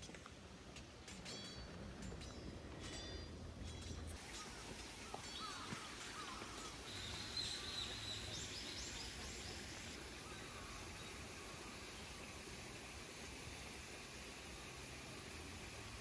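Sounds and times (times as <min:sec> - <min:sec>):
soft steady hiss: 0:00.0 - 0:16.0
birdsong: 0:01.2 - 0:13.6.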